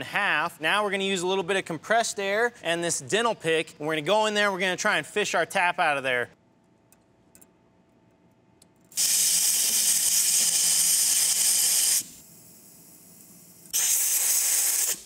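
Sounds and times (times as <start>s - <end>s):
compressed air blow gun hissing: 13.7s - 15.0s.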